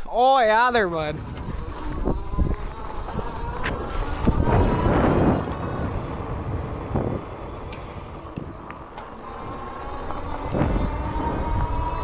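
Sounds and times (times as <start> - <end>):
wind buffeting microphone: 0.6 - 12.0
electric motor whine: 1.1 - 12.0
tyre rumble: 1.1 - 12.0.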